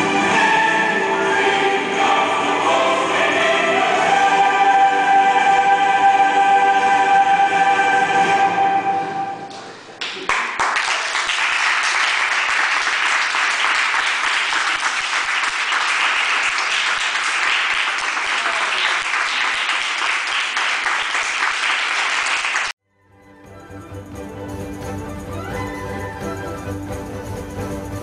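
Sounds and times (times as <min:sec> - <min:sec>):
music: 0:00.0 - 0:09.6, 0:22.8 - 0:28.0
audience applauding: 0:10.0 - 0:22.8.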